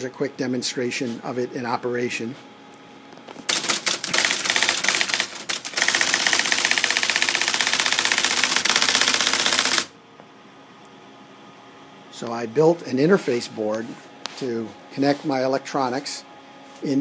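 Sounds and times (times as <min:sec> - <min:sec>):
typewriter typing: 0:03.5 - 0:09.9.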